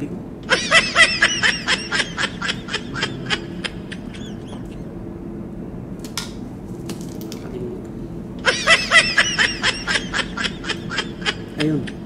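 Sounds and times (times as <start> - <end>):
person giggling: 0.5 - 4.8, 8.4 - 12.0.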